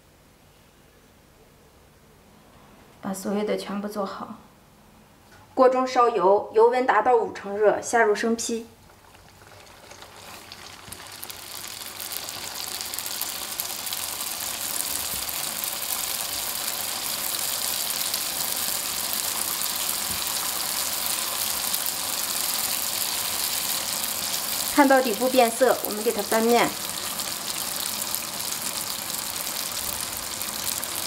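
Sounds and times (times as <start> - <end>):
dough sizzling in hot oil: 8.8 - 31.0.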